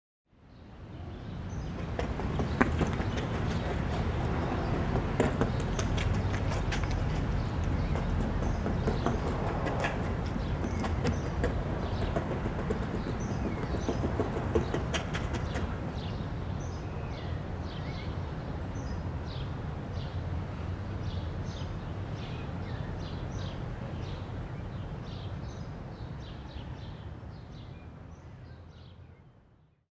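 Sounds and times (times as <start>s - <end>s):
small birds chirping: 1.2s - 18.0s.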